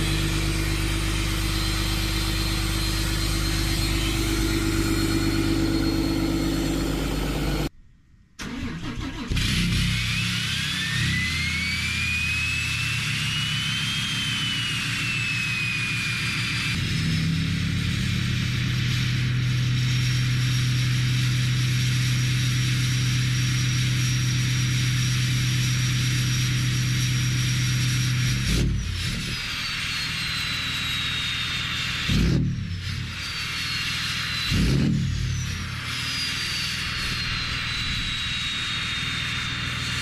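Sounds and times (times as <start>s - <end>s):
diesel engine idling: 0.0s - 7.7s
high turbo whistle: 0.0s - 7.7s, 8.4s - 40.0s.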